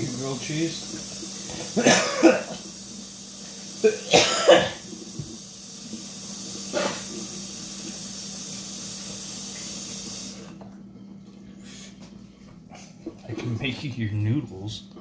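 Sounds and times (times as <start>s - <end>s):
steady hiss: 0.0s - 10.5s
cough: 1.5s - 2.6s, 3.8s - 4.9s, 6.7s - 7.1s.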